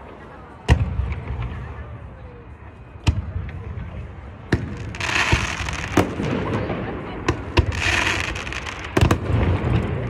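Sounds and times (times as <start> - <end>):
fireworks bangs: 4.6 - 10.0
fireworks hissing crackle: 4.8 - 6.6, 7.6 - 10.0.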